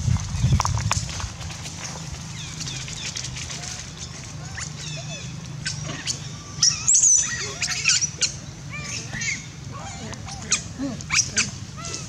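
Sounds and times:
low steady hum: 0:00.0 - 0:12.0
high chirping animal calls: 0:04.4 - 0:12.0.

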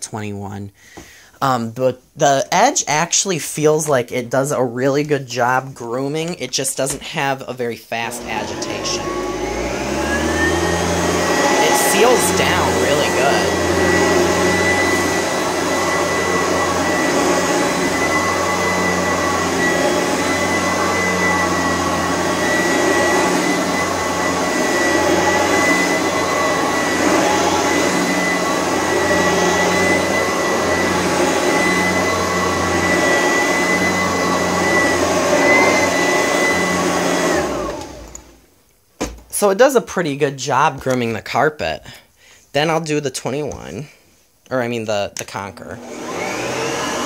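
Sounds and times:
vacuum cleaner motor whine: 0:07.9 - 0:38.4, 0:45.8 - 0:47.0.

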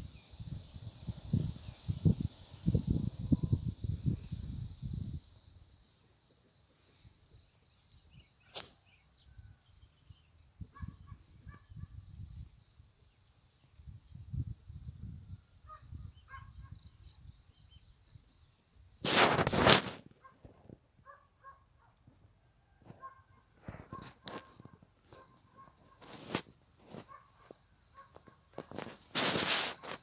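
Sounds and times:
wind on microphone: 0:00.0 - 0:05.3
loud rustling noise: 0:19.0 - 0:20.2, 0:23.6 - 0:27.2, 0:28.1 - 0:30.0.

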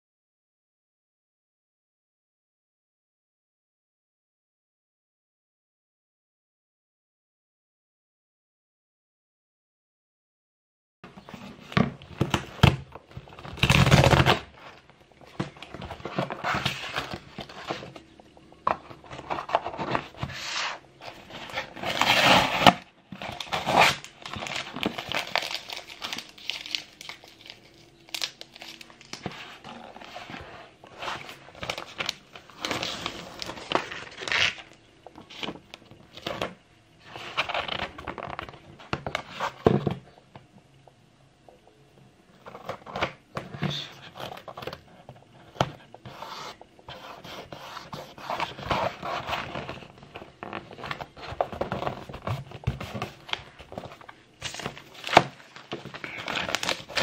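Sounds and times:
paper rustling and crinkling: 0:11.2 - 0:39.9, 0:42.4 - 0:57.0.

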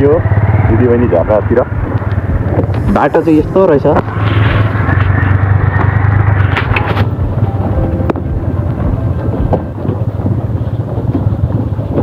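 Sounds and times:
motorcycle engine running: 0:00.0 - 0:12.0
wind rushing on microphone: 0:00.0 - 0:12.0.

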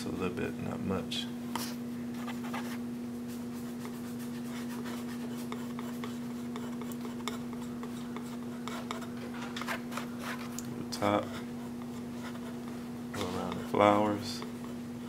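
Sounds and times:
steady low hum: 0:00.0 - 0:15.0
palette knife scraping paint: 0:03.6 - 0:14.8.

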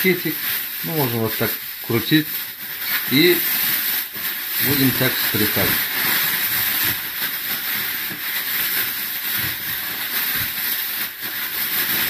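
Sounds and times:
plastic bag rustling: 0:00.0 - 0:12.0.

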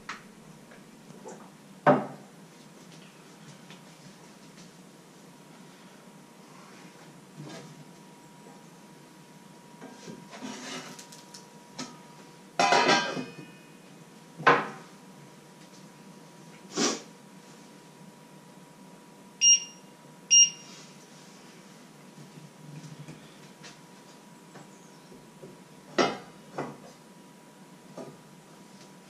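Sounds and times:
short electronic beeps: 0:19.4 - 0:20.7.

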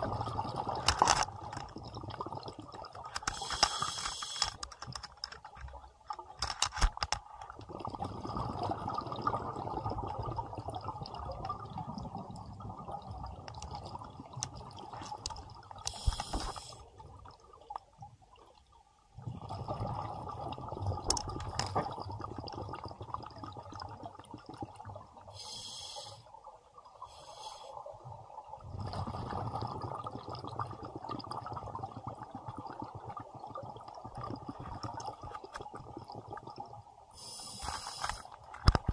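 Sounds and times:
regulator inhalation hiss: 0:03.3 - 0:04.6, 0:15.9 - 0:16.8, 0:25.3 - 0:26.3, 0:27.0 - 0:27.8, 0:37.2 - 0:38.3
exhaled breath bubbling underwater: 0:07.7 - 0:14.9, 0:19.2 - 0:38.3.

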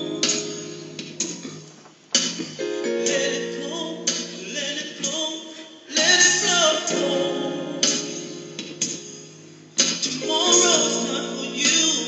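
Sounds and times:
backing track with strong beat: 0:00.0 - 0:12.0
man singing: 0:02.9 - 0:08.2, 0:10.2 - 0:12.0.

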